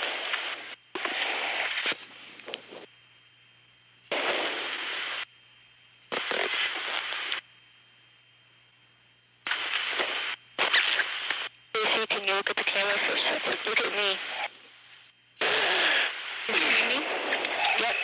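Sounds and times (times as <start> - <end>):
faint steady hum: 0.0 - 18.0
radio hiss and crackle bursts: 0.0 - 18.0.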